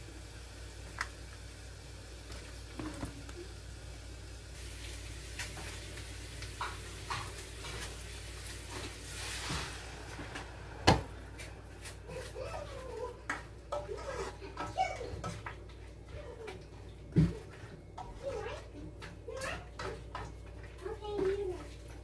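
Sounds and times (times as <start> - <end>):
food sizzling in a frying pan: 0.0 - 12.0.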